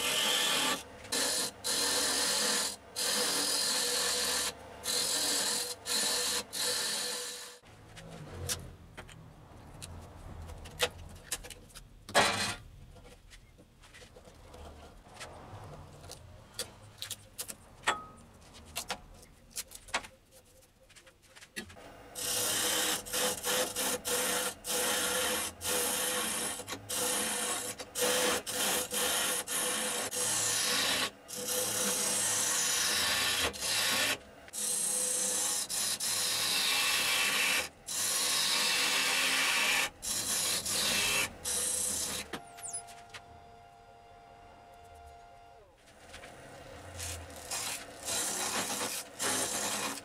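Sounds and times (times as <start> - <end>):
lathe tool scraping wood: 0.0 - 7.6, 22.2 - 42.4, 45.9 - 50.0.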